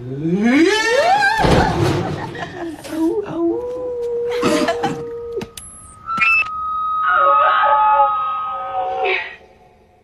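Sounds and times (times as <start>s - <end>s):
noisy swell with wavering tones: 5.8s - 10.0s
microphone feedback whistling: 5.9s - 9.4s.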